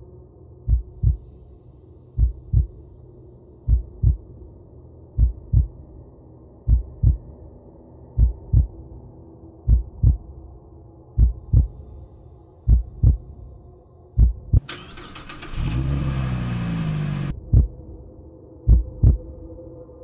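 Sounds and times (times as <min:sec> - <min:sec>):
heartbeat thumps: 0:00.7 - 0:01.3, 0:02.2 - 0:02.7, 0:03.7 - 0:04.2, 0:05.2 - 0:05.8, 0:06.7 - 0:07.3, 0:08.2 - 0:08.8, 0:09.7 - 0:10.3, 0:11.2 - 0:11.8, 0:12.7 - 0:13.2, 0:14.2 - 0:14.6, 0:17.3 - 0:17.8, 0:18.7 - 0:19.3.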